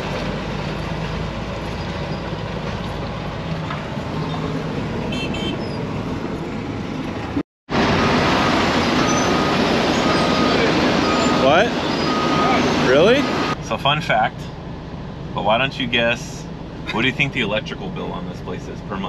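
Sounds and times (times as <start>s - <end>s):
diesel truck engine running: 0.0s - 19.0s
backup alarm beeps: 9.0s - 13.6s.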